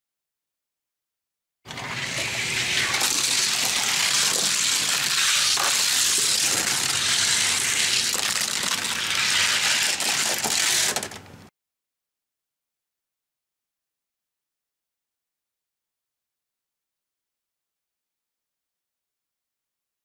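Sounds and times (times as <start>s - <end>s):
toy cars rolling down plastic track: 1.7s - 11.3s.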